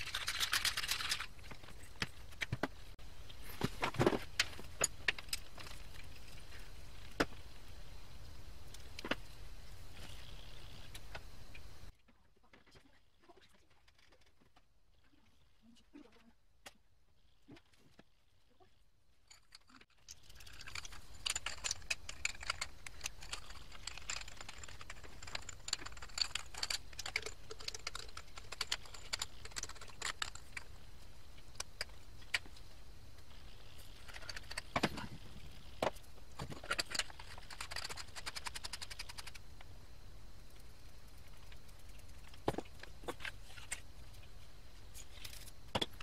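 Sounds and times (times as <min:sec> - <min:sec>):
small metal parts clinking: 0:00.0 - 0:02.1, 0:19.2 - 0:30.8.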